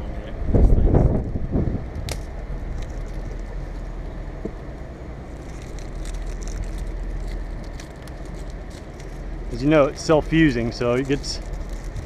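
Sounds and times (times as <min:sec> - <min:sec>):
steady low rumble: 0:00.0 - 0:12.0
rubber tape crackling: 0:02.0 - 0:04.1, 0:05.2 - 0:12.0.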